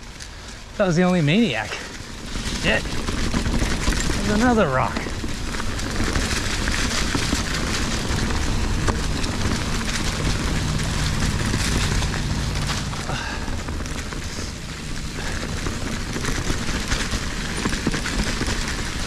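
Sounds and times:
bike rattling: 0.0s - 19.0s
tyres crunching on rocky trail: 0.0s - 19.0s
wind rumble on microphone: 0.0s - 19.0s.

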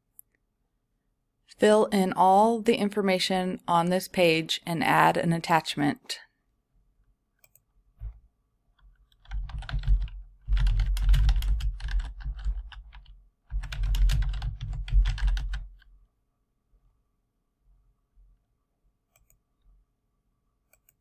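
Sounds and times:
computer keyboard typing: 8.8s - 15.9s.

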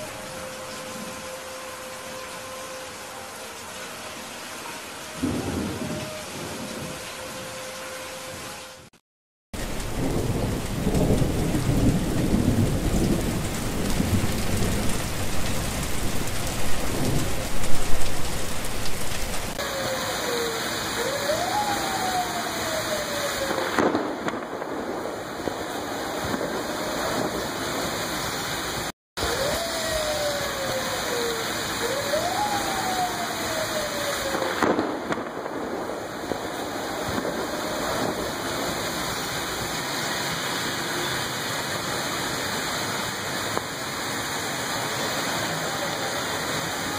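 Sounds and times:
heavy rain pouring: 0.0s - 9.0s, 9.6s - 46.9s
low rumble of thunder: 9.6s - 20.1s, 21.0s - 28.0s, 31.8s - 39.2s.

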